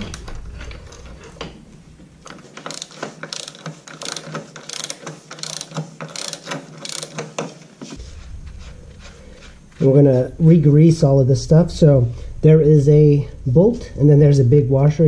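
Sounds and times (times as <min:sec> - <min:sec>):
ratchet wrench clicking: 0:02.6 - 0:07.5.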